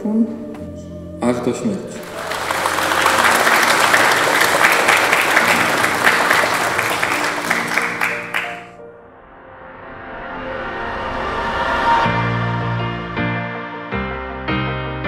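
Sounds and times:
soft background music: 0.0s - 9.6s
crowd applauding: 2.0s - 8.8s.

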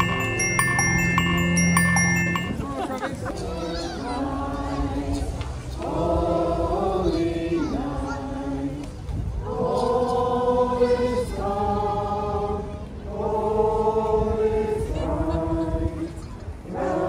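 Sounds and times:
group singing a carol: 3.3s - 17.0s.

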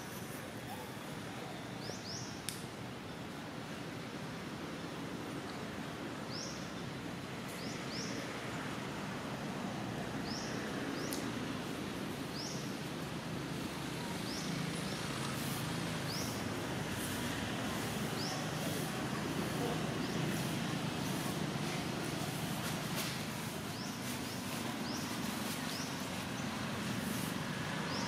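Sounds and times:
low background noise: 0.0s - 28.0s.

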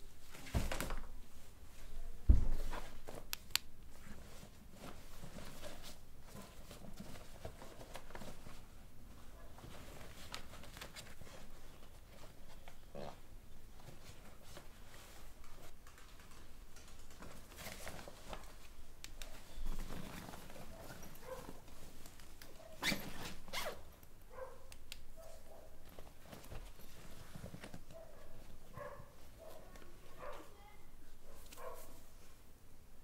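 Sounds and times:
backpack zipper opening: 22.8s - 23.8s.

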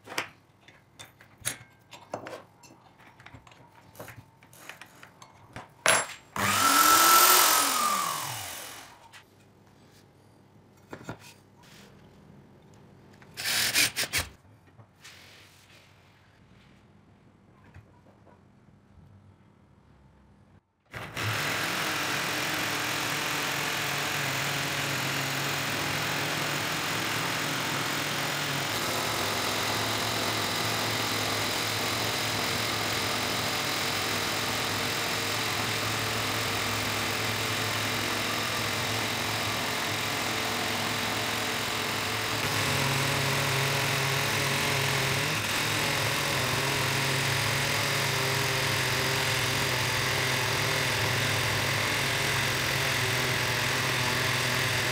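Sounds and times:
electric drill running: 6.4s - 9.1s, 13.4s - 14.2s, 21.0s - 54.9s
blade shaving wooden rod: 6.4s - 9.2s, 21.2s - 54.9s.

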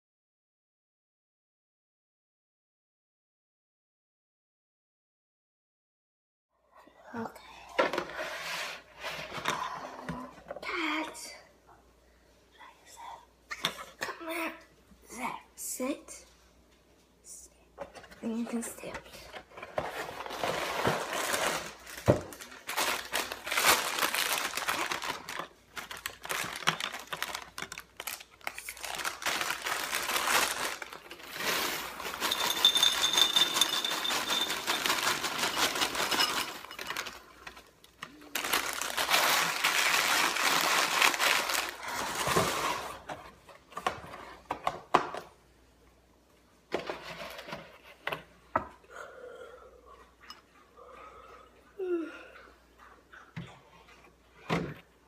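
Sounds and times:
plastic liner crinkling: 20.2s - 32.6s, 34.0s - 42.8s
dry cereal pouring into bowl: 28.8s - 36.9s.

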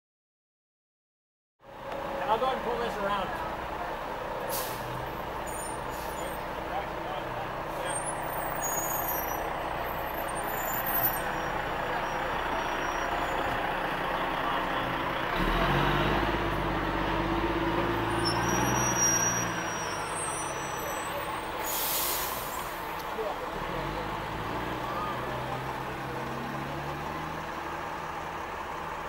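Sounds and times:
fire truck engines running: 1.6s - 29.0s
hissing air burst: 4.5s - 5.0s, 21.6s - 22.9s
deeper engine revving: 9.3s - 29.0s.

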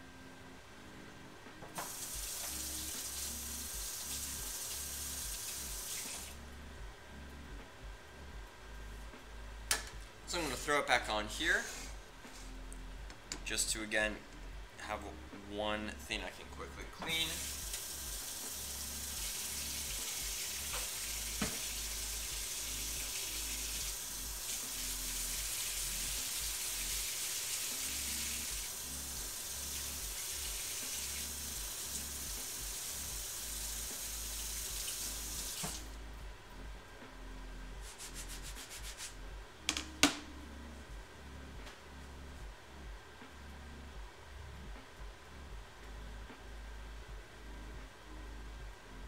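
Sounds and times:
faucet water running into sink: 1.8s - 6.3s, 17.3s - 35.9s.

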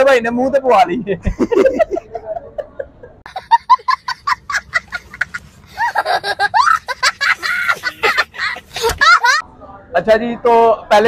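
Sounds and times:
high-pitched laughter: 1.3s - 9.4s.

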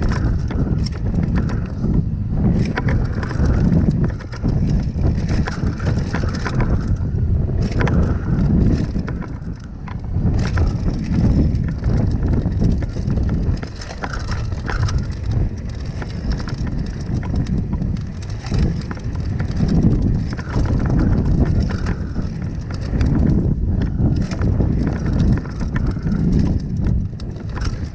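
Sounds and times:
bike chain rattling and clicking: 0.0s - 27.9s
tyres crunching over dirt: 0.0s - 27.9s
wind buffeting microphone: 0.0s - 27.9s.

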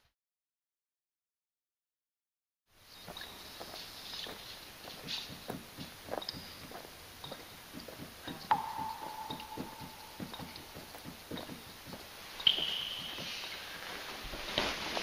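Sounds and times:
soft wet clicking and smacking: 4.3s - 12.8s
ringing note: 8.5s - 10.9s.

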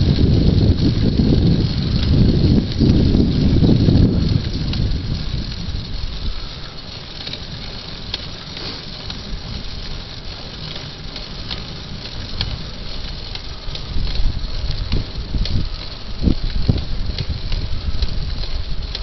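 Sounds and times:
wind on microphone: 0.0s - 6.6s, 13.5s - 19.0s
bicycle tyres on asphalt: 0.0s - 19.0s
faint ticks and rattles: 0.0s - 19.0s.

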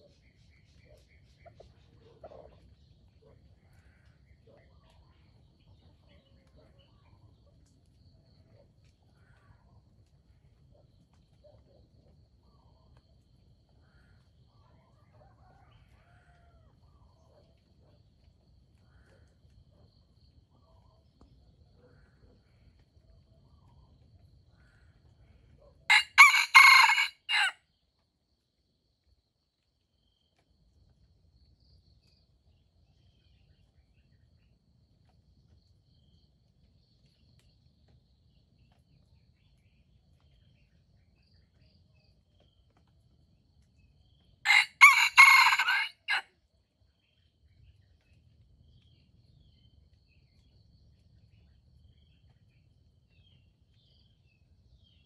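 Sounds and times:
rooster crowing: 25.9s - 27.6s, 44.5s - 46.3s.

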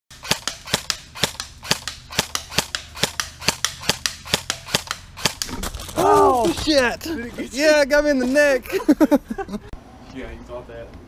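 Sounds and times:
airsoft rifle shots: 0.1s - 5.6s.

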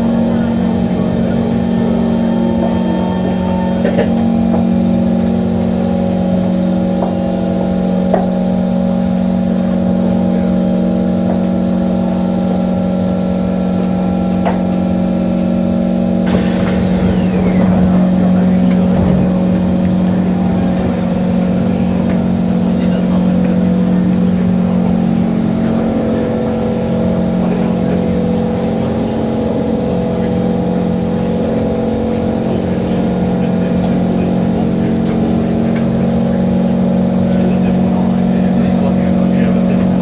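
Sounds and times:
steady tones: 0.0s - 40.0s
train running hum: 0.0s - 40.0s
train doors hissing open: 16.2s - 19.8s.

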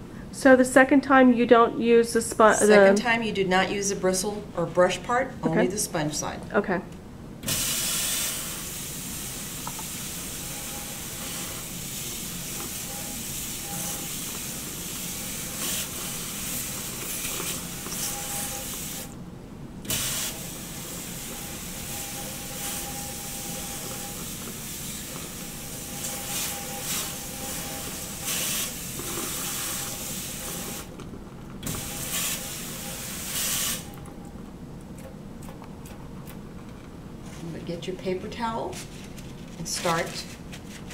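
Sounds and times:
faucet water running into metal sink: 31.8s - 33.8s.

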